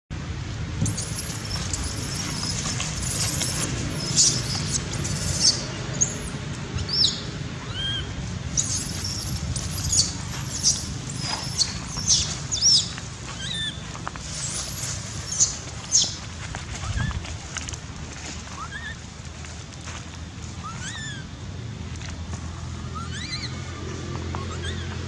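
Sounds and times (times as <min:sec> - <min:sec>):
baby monkey squealing: 0:00.8 - 0:16.2, 0:18.6 - 0:19.0, 0:20.6 - 0:21.3, 0:22.8 - 0:25.0
monkey chirps: 0:00.8 - 0:16.2, 0:18.6 - 0:19.0, 0:20.6 - 0:21.3, 0:22.8 - 0:25.0.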